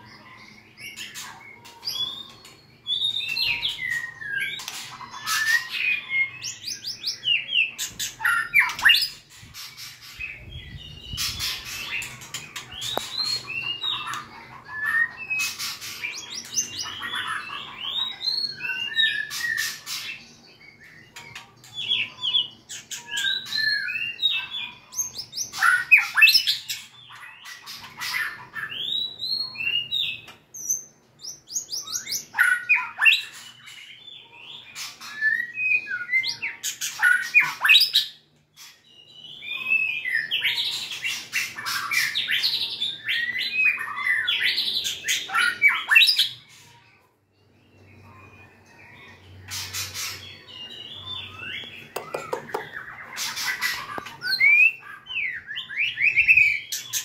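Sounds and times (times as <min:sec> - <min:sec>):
bird singing whistled notes: 0:16.1 - 0:19.9, 0:21.9 - 0:26.8, 0:47.8 - 0:57.0.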